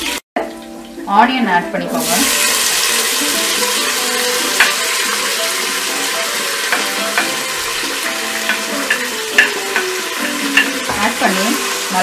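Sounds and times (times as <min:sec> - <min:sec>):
onion sizzling in oil: 0:00.0 - 0:12.0
spatula knocking pot: 0:04.5 - 0:05.0, 0:06.4 - 0:11.4.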